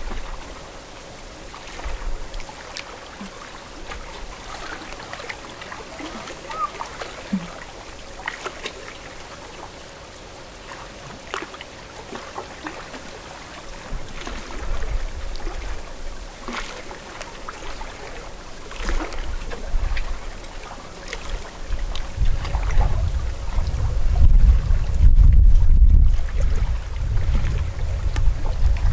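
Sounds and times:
wind rumble on microphone: 0:00.0 - 0:00.6, 0:13.7 - 0:16.7, 0:17.6 - 0:28.9
lake waves lapping on shore: 0:00.0 - 0:28.9.

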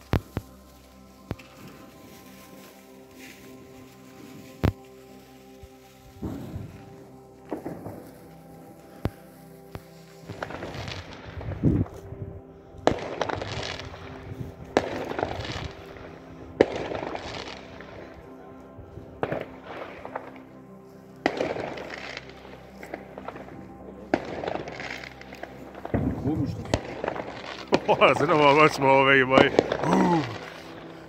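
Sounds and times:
fireworks bangs and crackling: 0:00.0 - 0:00.4, 0:06.2 - 0:08.3, 0:09.7 - 0:11.9, 0:12.8 - 0:15.9, 0:16.6 - 0:18.0, 0:21.2 - 0:22.2, 0:24.1 - 0:30.9
music playing: 0:00.0 - 0:31.0.

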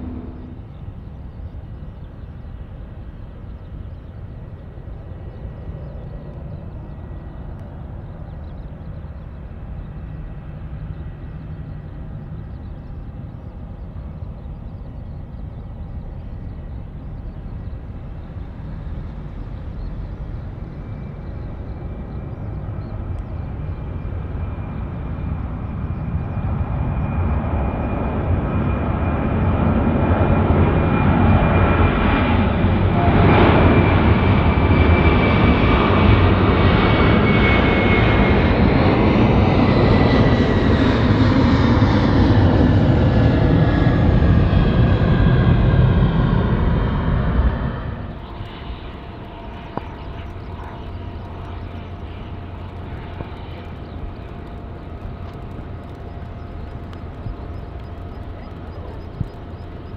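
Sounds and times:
background hum: 0:00.0 - 0:59.9
jet engines passing close: 0:00.0 - 0:59.9.

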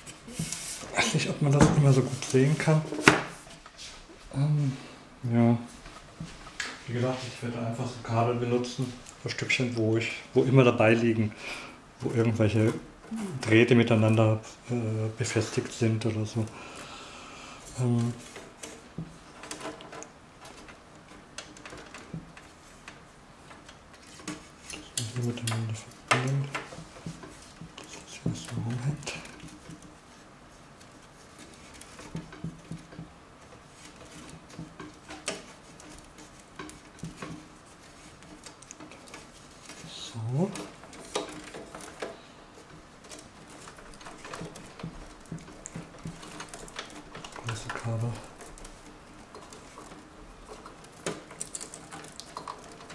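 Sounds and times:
cables clicking and rustling: 0:12.0 - 0:17.0, 0:17.6 - 0:52.9
light clicks and taps: 0:21.4 - 0:29.9.

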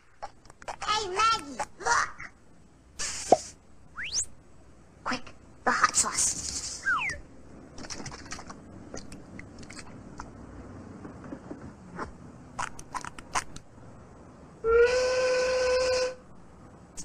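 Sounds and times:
cartoon whistle: 0:04.0 - 0:04.3, 0:06.8 - 0:07.2.

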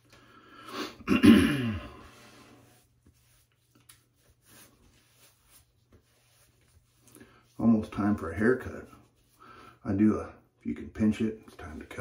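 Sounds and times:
man clearing throat: 0:01.0 - 0:02.0
washcloth rustling on face: 0:01.8 - 0:10.0.

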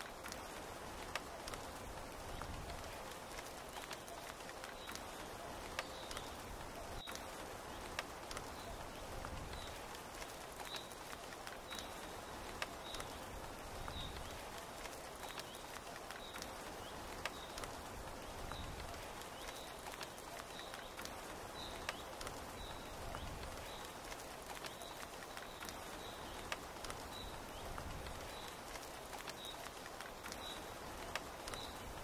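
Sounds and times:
steady rain: 0:00.0 - 0:32.0.

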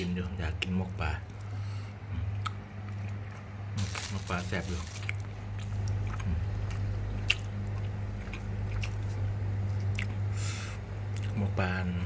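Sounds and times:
steady low hum: 0:00.0 - 0:12.0
person chewing food: 0:01.3 - 0:10.3, 0:11.1 - 0:11.4.

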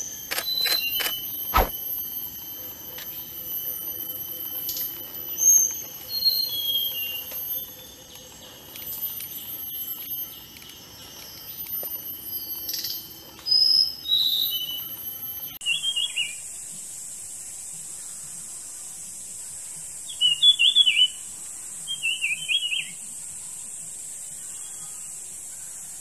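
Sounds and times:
songbird whistling: 0:00.0 - 0:08.1, 0:08.9 - 0:16.4, 0:20.1 - 0:23.0
bird twittering: 0:04.7 - 0:08.0.

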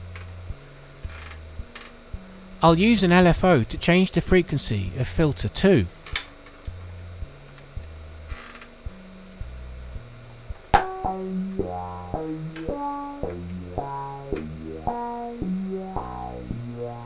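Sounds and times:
synthesizer sequence of low notes: 0:09.9 - 0:17.0.

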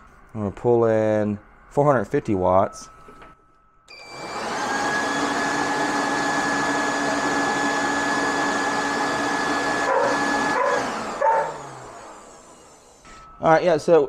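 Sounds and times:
electric leaf blower running: 0:03.9 - 0:13.2.

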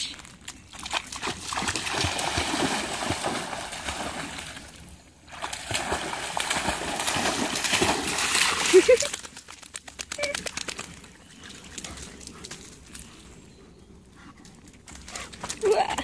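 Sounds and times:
dog splashing through water: 0:00.7 - 0:12.8.

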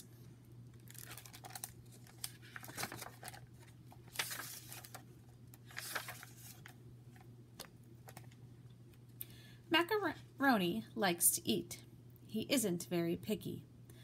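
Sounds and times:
plastic crinkling: 0:00.8 - 0:08.4
paper pages rustling: 0:00.9 - 0:08.4.

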